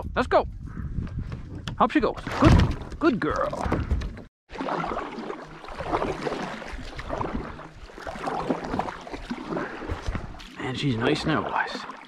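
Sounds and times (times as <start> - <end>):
water splashing and dripping: 2.2 - 12.0
kayak paddle pulling through water: 3.6 - 12.0.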